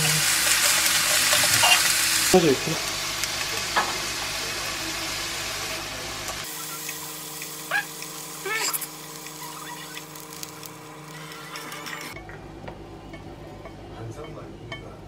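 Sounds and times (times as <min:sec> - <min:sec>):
meat sizzling in a frying pan: 0:00.0 - 0:11.6.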